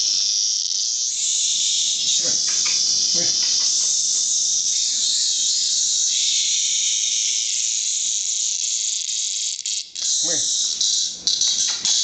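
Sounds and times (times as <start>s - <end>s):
cicada buzzing: 0.0s - 12.0s.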